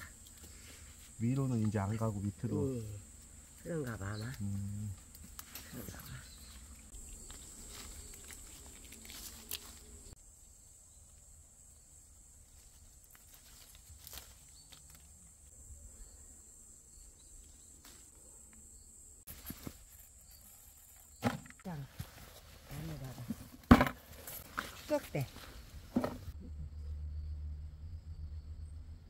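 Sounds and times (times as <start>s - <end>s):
insects droning: 0.0s - 29.0s
rustles on the ground: 5.0s - 10.2s, 12.4s - 15.2s, 19.3s - 26.4s.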